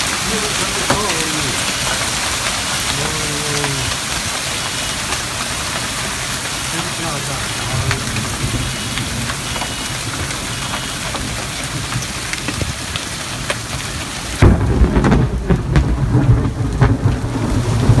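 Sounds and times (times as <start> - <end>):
hail hissing: 0.0 - 18.0
hailstones clacking: 0.0 - 18.0
heavy low rumble: 7.0 - 12.0.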